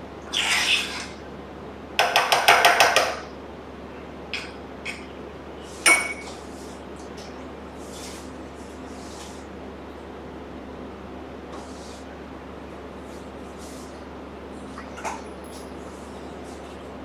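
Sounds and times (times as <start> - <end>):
spoon clinking against bowl: 5.9 - 6.4.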